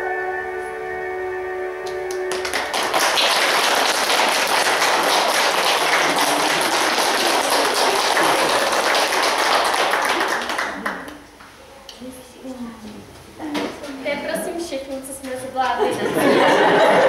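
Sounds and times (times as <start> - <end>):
backing music: 0.0 - 3.7
audience applauding: 2.1 - 11.3.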